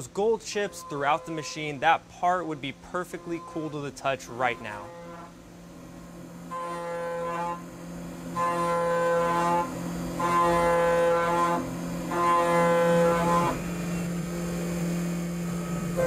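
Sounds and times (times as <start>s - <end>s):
metal cutting whine: 0.0s - 16.0s
milling spindle hum: 0.0s - 16.0s.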